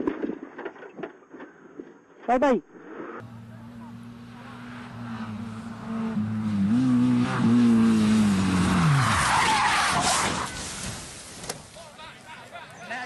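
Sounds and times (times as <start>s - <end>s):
rally car engine revving: 3.2s - 10.7s
car skidding through grass: 7.4s - 11.8s.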